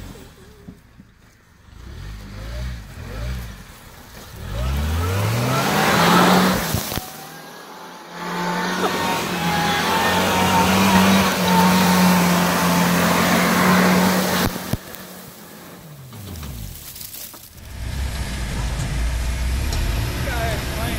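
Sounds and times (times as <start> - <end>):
tires spinning in mud: 0.0 - 20.9
pickup engine revving hard: 1.7 - 16.8.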